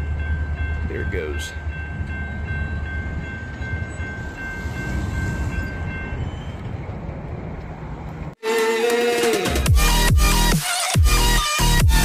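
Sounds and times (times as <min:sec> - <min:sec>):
railroad crossing bell ringing: 0:00.0 - 0:06.9
freight train rumbling: 0:00.0 - 0:08.4.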